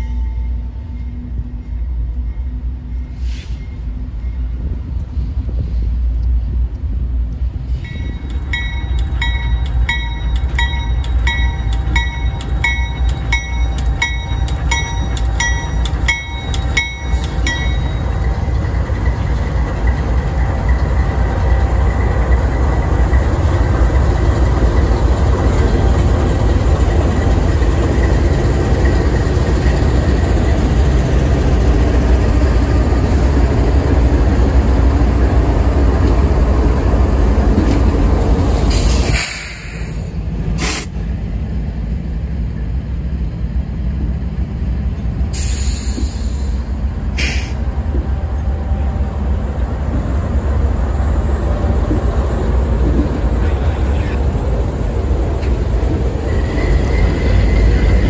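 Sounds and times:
locomotive engine rumble: 0.0 - 58.0
train wheels on rails: 0.0 - 58.0
bell ringing: 7.9 - 18.2.

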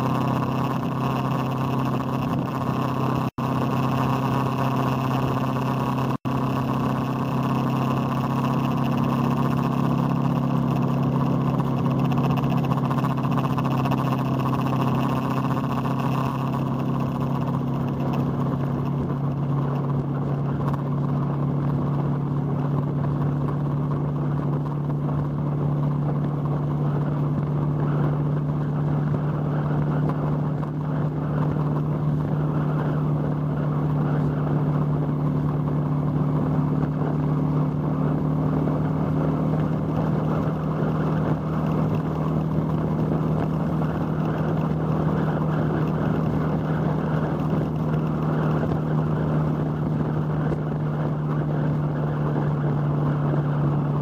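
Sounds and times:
motorcycle engine running: 0.0 - 54.0
wind on microphone: 16.4 - 54.0.

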